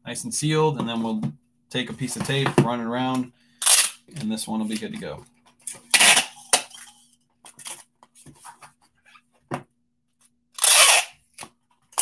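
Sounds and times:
packing tape ripping: 5.8s - 6.8s, 10.6s - 12.0s.

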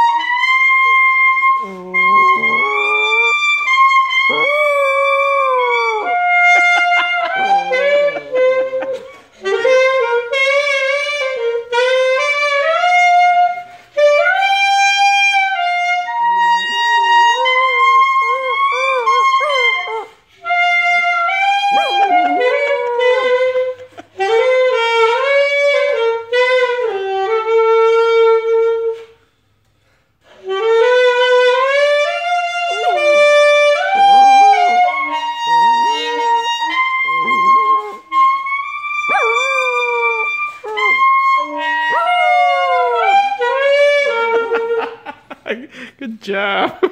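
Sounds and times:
saxophone playing held notes: 0.0s - 29.2s, 30.2s - 44.9s
puppy howling: 0.8s - 9.2s, 16.4s - 20.2s, 21.3s - 23.8s, 32.4s - 44.6s.

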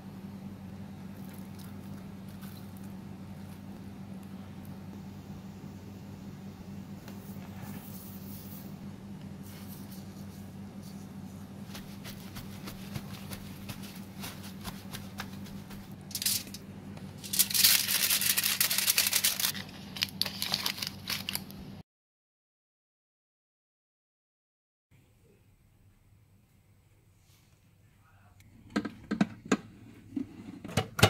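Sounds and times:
steady low hum: 0.0s - 21.8s
fingers dabbing with paper: 9.7s - 16.0s
aluminium foil crinkling: 11.7s - 16.6s, 17.2s - 21.6s.

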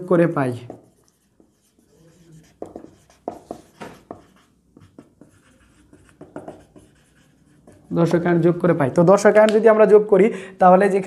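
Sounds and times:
marker pen writing on whiteboard: 0.0s - 8.5s.

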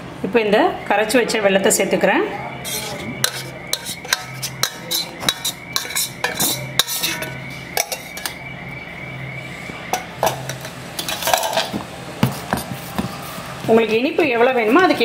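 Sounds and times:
metal strainer clinking on bowl: 3.2s - 8.3s.

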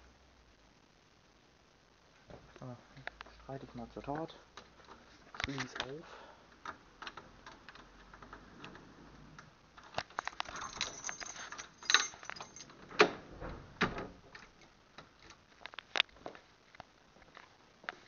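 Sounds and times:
keys jangling in a door lock: 10.1s - 13.0s.

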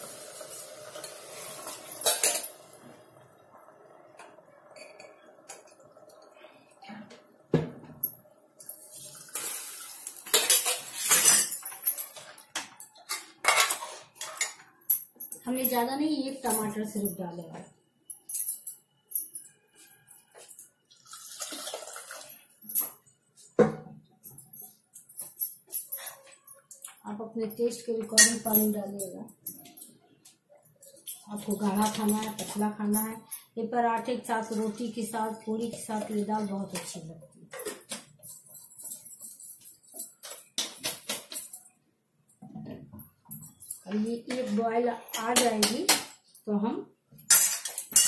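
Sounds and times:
metal spoon scraping and clanking: 0.5s - 2.7s, 10.2s - 12.4s, 13.0s - 14.7s
utensils clinking: 0.5s - 2.8s, 4.2s - 6.4s, 8.0s - 17.2s, 27.8s - 30.0s, 30.7s - 33.6s, 34.4s - 41.7s, 47.2s - 48.0s
water pouring and splashing: 8.7s - 10.9s, 20.9s - 22.6s.

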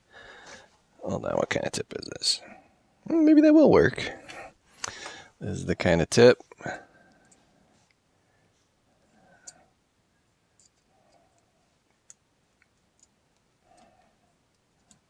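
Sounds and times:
faint small clicks: 10.6s - 15.0s.

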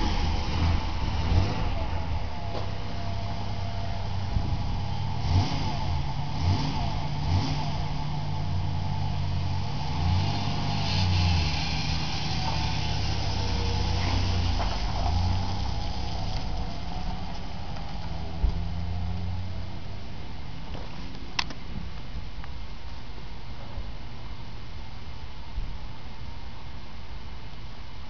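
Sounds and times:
car engine revving: 0.0s - 21.5s.

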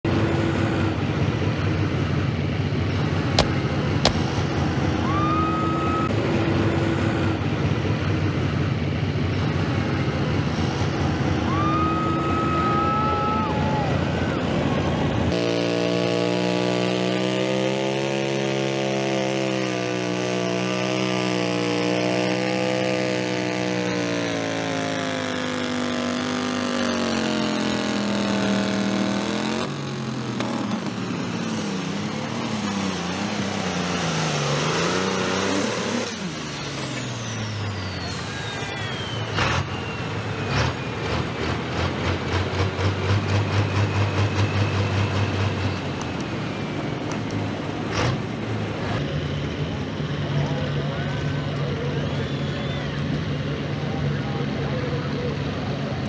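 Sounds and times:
tractor engine rumbling under load: 0.0s - 56.0s
turbo whistle: 5.0s - 6.1s, 36.0s - 41.1s, 51.8s - 53.4s
sharp clicks: 47.0s - 47.4s.

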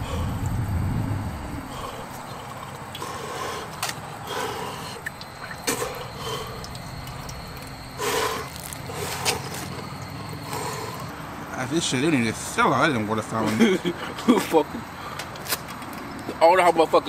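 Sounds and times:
man gasping breaths: 0.0s - 0.5s, 1.6s - 5.1s
man slurping: 1.7s - 9.8s
fountain water splashing: 4.2s - 11.0s.

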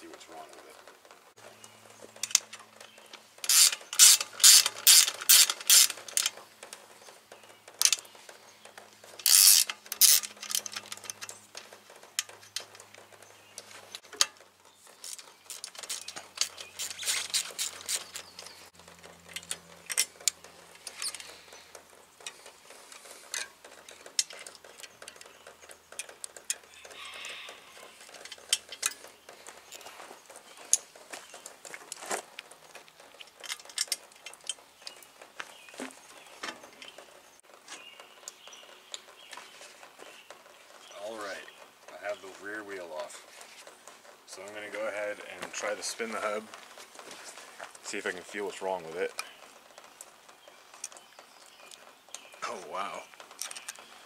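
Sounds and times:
ratcheting wrench clicking: 3.4s - 6.4s, 9.1s - 11.4s, 15.0s - 18.6s
faint metal clicks and taps: 6.0s - 37.1s.

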